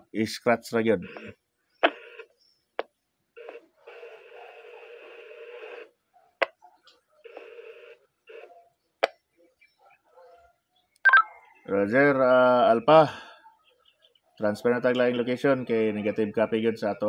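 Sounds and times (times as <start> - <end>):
scratchy broken radio audio: 0.8 - 10.4
radio squelch clicks: 1.0 - 7.7, 8.3 - 9.3.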